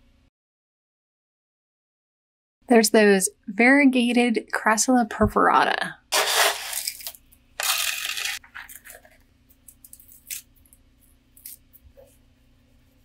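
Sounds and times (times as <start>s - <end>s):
hands scraping potting soil: 6.1s - 7.0s.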